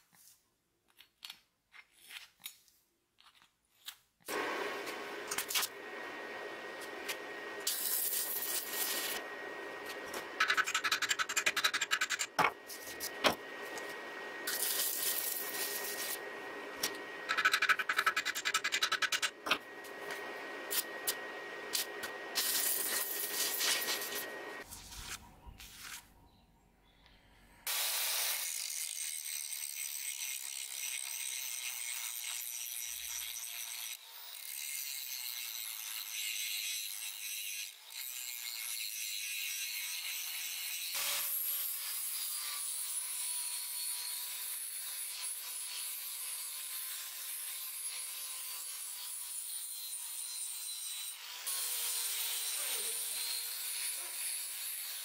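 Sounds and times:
grinder motor whine: 4.3s - 10.5s, 12.3s - 17.4s, 19.4s - 24.7s.

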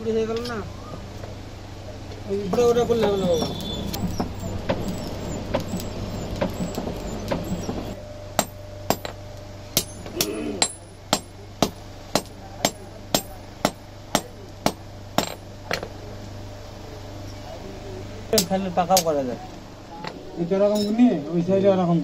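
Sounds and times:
hammer striking blade on anvil: 8.4s - 9.2s, 9.8s - 15.4s.

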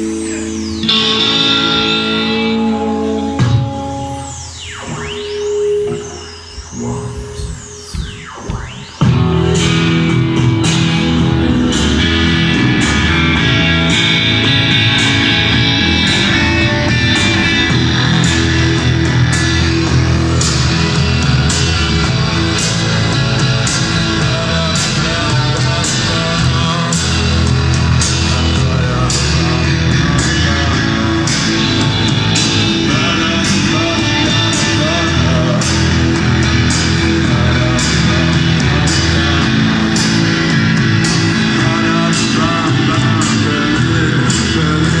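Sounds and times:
bass guitar: 0.0s - 45.0s
electric guitar: 0.0s - 45.0s
percussive beat: 5.9s - 26.4s.

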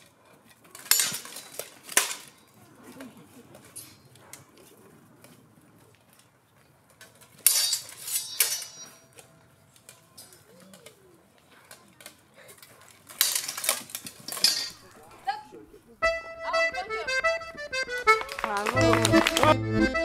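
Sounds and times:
swords clashing on armour: 0.8s - 2.4s, 7.3s - 9.1s, 13.1s - 14.8s.

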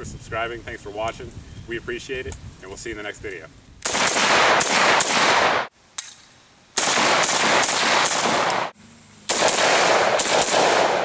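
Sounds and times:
rifle firing rapid shots: 3.8s - 5.7s, 6.8s - 8.7s, 9.3s - 11.0s.

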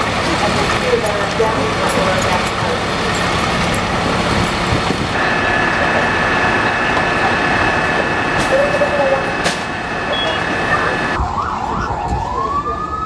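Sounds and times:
fire truck diesel engines rumbling: 0.0s - 13.0s
steady high-pitched tone: 5.2s - 12.4s.

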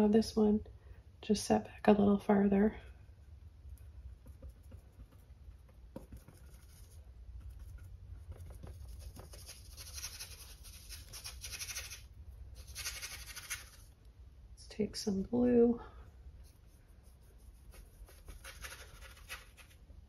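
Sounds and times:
paintbrush strokes on canvas: 16.4s - 19.8s.

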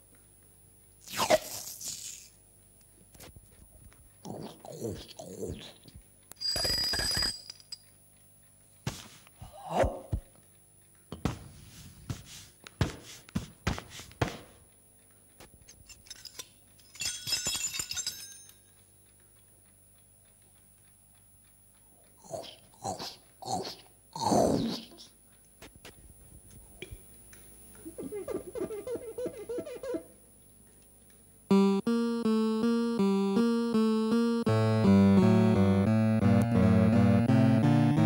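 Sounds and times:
mouth-made chewing and crunching: 18.8s - 26.0s
mouth clicks: 22.1s - 25.2s.

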